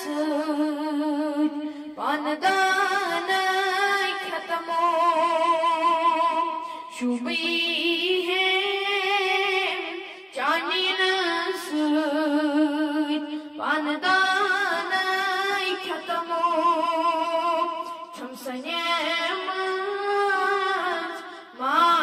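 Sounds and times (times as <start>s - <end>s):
boy singing devotional song: 0.0s - 22.0s.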